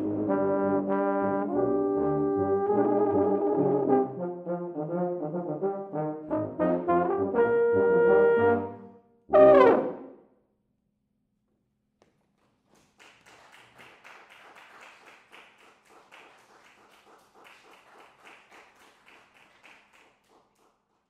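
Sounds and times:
single hand claps: 0:12.0 - 0:20.8
faint applause: 0:12.4 - 0:21.0.

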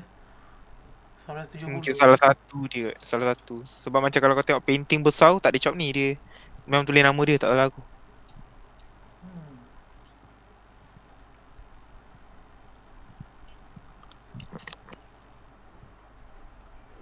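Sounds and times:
computer mouse clicks: 0:11.0 - 0:11.7, 0:12.7 - 0:15.5.

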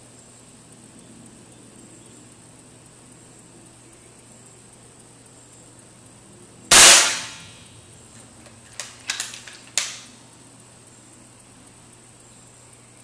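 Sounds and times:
air rifle shot: 0:06.7 - 0:07.6.

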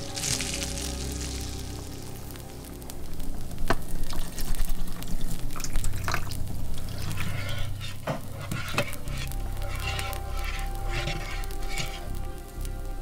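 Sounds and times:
liquid dripping into frying pan: 0:03.6 - 0:07.2
utensils clinking against pans: 0:06.8 - 0:12.1.

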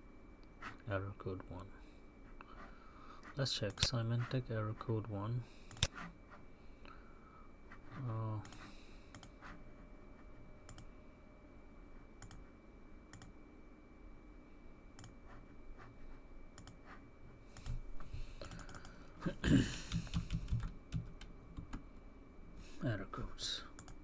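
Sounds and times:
computer keyboard typing: 0:08.4 - 0:09.3, 0:10.7 - 0:10.9, 0:12.2 - 0:12.4, 0:18.4 - 0:19.0, 0:19.8 - 0:21.8, 0:23.8 - 0:24.0.

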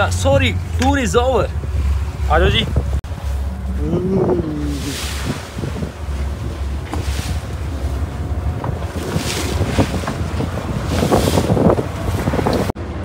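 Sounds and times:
boat engine droning: 0:00.0 - 0:13.0
wind buffeting microphone: 0:00.0 - 0:13.0.

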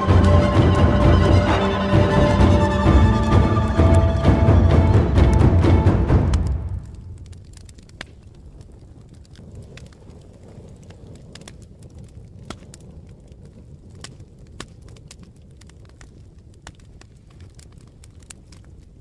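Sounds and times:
loud music cue: 0:00.0 - 0:07.4
steady low rumble: 0:00.0 - 0:08.9
sharp crackles and pops: 0:03.6 - 0:19.0.

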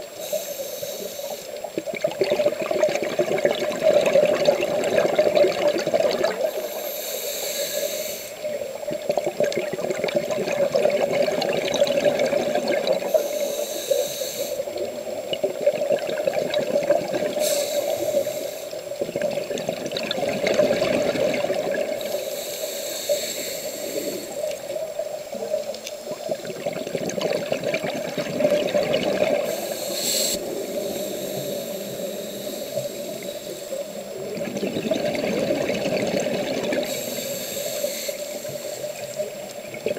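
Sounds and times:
scuba regulator breathing hiss: 0:00.0 - 0:01.8, 0:06.2 - 0:08.8, 0:12.5 - 0:15.2, 0:17.1 - 0:19.0, 0:21.5 - 0:25.1, 0:29.1 - 0:34.4, 0:36.7 - 0:39.6
rushing water underwater: 0:00.0 - 0:39.9.

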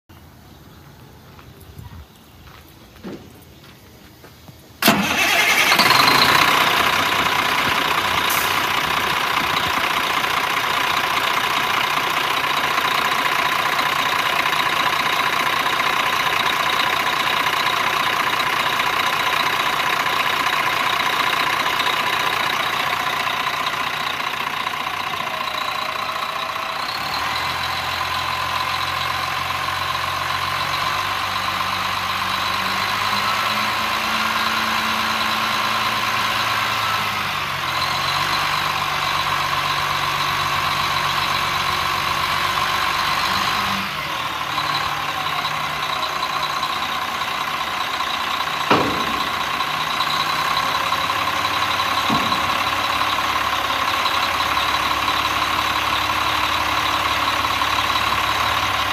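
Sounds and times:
diesel truck engine idling: 0:00.1 - 0:58.9.

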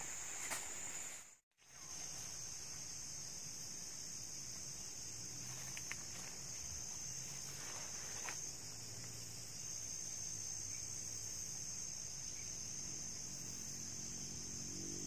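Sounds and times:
high-pitched insect chorus: 0:00.0 - 0:15.0
faint small ticks: 0:05.7 - 0:06.1.

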